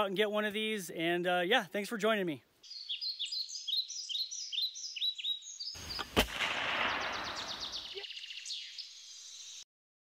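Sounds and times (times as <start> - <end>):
birds chirping: 1.8 - 9.6
sharp shot-like crack: 5.8 - 7.9
fast high trill of chirps: 6.9 - 8.0.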